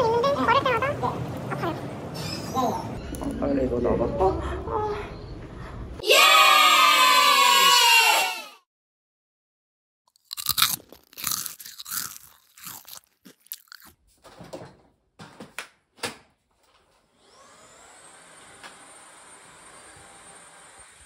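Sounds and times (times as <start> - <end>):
crunching and chewing: 10.1 - 14.0
cordless vacuum whine: 17.2 - 21.0.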